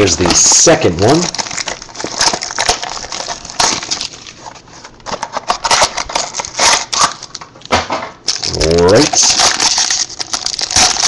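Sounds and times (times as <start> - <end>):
cardboard box tearing and crinkling: 1.2 - 7.1, 8.3 - 11.0.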